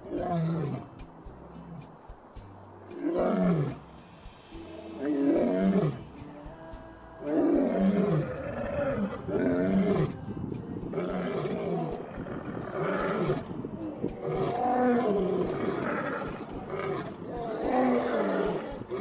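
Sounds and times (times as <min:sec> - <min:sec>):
lions roaring: 0:00.0 - 0:00.9, 0:03.0 - 0:03.8, 0:04.7 - 0:06.0, 0:07.3 - 0:10.2, 0:10.9 - 0:19.0.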